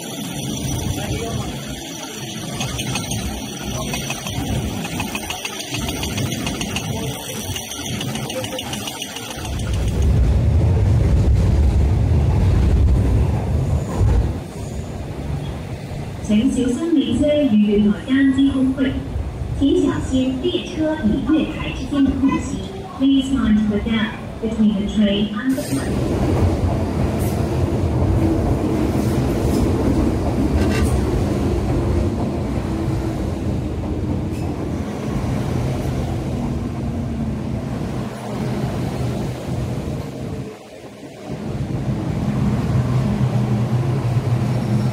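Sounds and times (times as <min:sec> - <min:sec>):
train wheels rumbling on rail: 0:00.0 - 0:44.9
wheels clicking over rail joints: 0:02.2 - 0:10.3.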